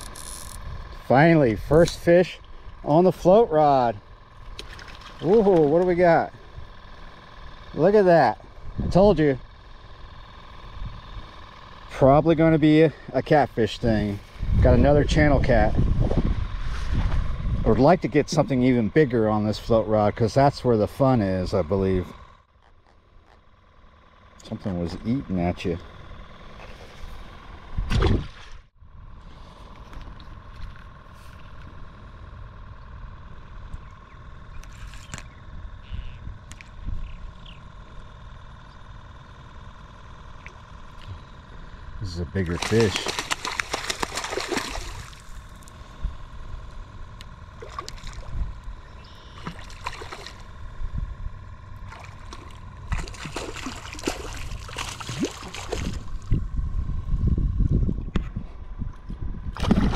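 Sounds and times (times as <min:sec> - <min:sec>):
faint constant hum: 0:00.0 - 0:59.9
outdoor background rumble: 0:00.0 - 0:59.9
fish splashing in water: 0:04.6 - 0:05.5, 0:42.5 - 0:45.5, 0:47.6 - 0:48.3, 0:49.3 - 0:50.5, 0:51.9 - 0:56.3.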